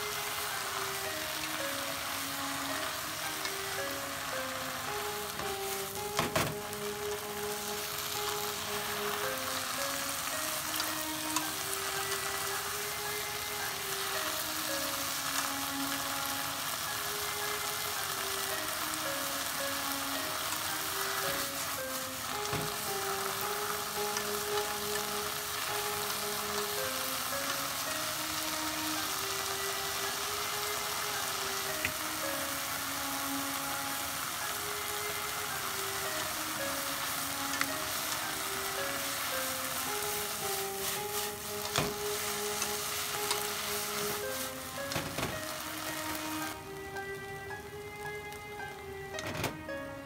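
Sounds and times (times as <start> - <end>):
food sizzling in a pan: 0.0 - 49.1
gentle background melody: 0.0 - 50.0.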